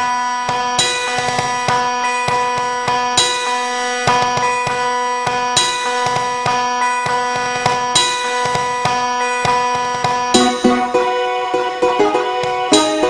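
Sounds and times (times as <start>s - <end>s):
hand drums: 5.6s - 11.1s.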